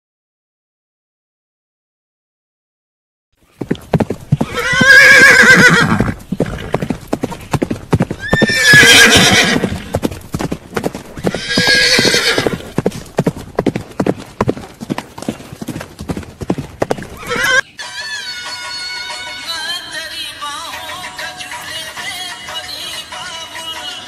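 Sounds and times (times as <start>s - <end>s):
horse hooves galloping: 3.4s - 17.6s
horse whinnying: 4.0s - 13.2s, 16.8s - 18.2s.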